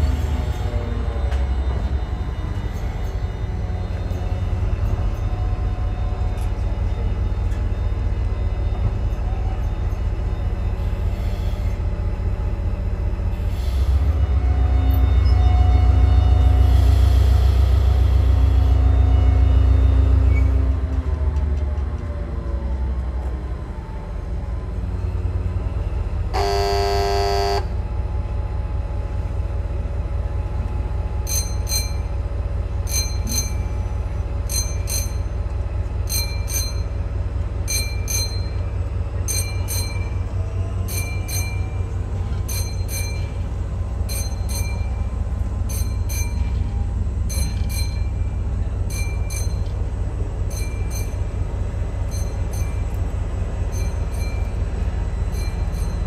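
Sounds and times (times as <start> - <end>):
train rumbling: 0.0 - 56.0
train horn blast: 26.3 - 27.8.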